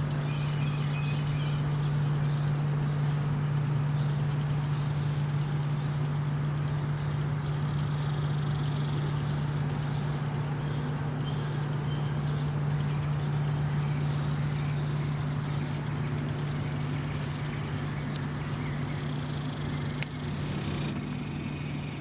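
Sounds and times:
machine humming: 0:00.0 - 0:22.0.

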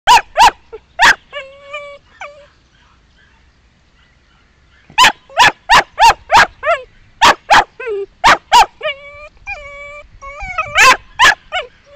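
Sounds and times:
puppy barking: 0:00.1 - 0:01.2, 0:04.9 - 0:09.0, 0:10.5 - 0:11.7
puppy whining and whimpering: 0:01.0 - 0:02.5, 0:07.8 - 0:08.1, 0:08.8 - 0:11.9.

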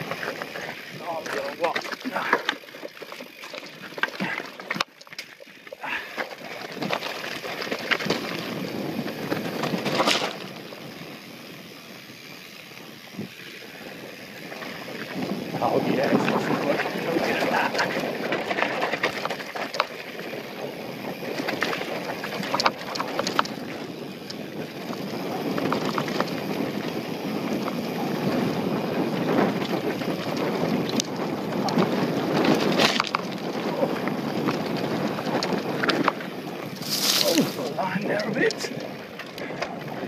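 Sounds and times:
bike rattling: 0:00.0 - 0:40.0
tyres crunching over stones: 0:00.0 - 0:40.0
wind noise on microphone: 0:07.8 - 0:11.6, 0:13.0 - 0:19.6, 0:20.2 - 0:40.0.

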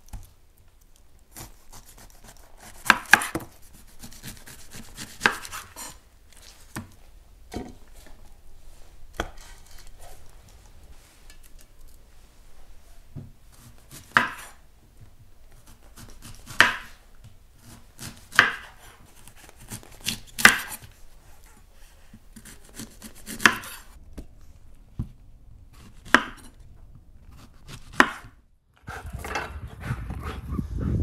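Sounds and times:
knife cutting on wooden board: 0:01.3 - 0:06.0, 0:22.4 - 0:23.9, 0:27.3 - 0:29.4
steady low noise: 0:28.8 - 0:31.0.

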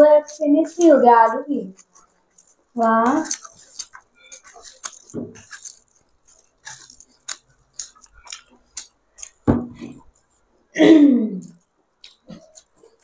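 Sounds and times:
food squished with fingers: 0:00.2 - 0:10.5, 0:11.4 - 0:13.0
wet chewing and lip smacks: 0:01.6 - 0:10.4, 0:11.4 - 0:13.0.

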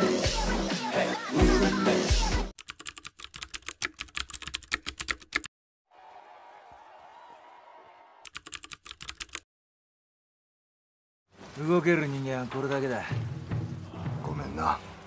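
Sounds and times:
rapid irregular clicking: 0:02.6 - 0:05.5, 0:08.3 - 0:09.4.

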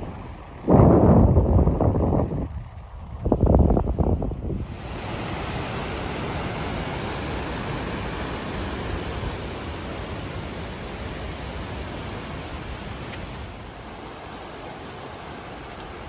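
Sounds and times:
river rushing over rapids: 0:04.6 - 0:16.0.

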